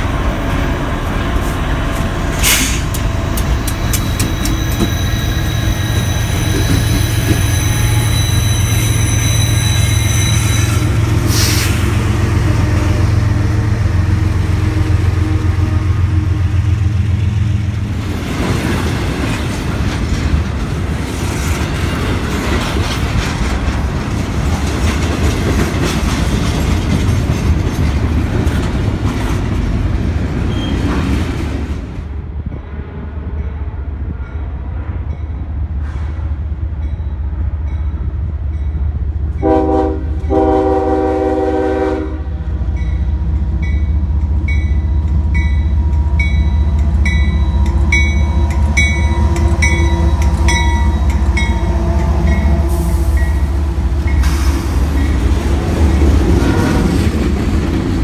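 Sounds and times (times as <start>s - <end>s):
diesel locomotive engine drone: 0.0s - 58.0s
train wheels clattering on rails: 1.3s - 12.0s, 17.9s - 32.0s, 42.6s - 58.0s.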